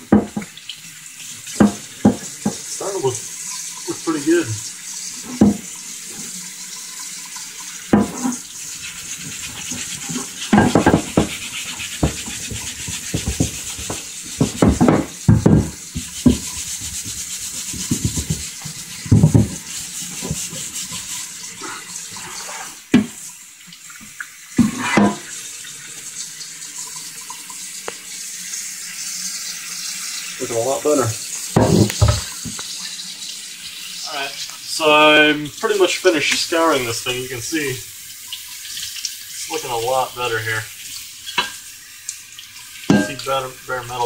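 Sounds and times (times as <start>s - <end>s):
tap running into steel sink: 0.0s - 0.6s, 1.5s - 2.7s, 5.2s - 6.3s, 7.9s - 8.4s, 9.2s - 21.1s, 31.5s - 32.8s, 41.3s - 41.6s
scrub pad scouring metal: 8.1s - 22.8s.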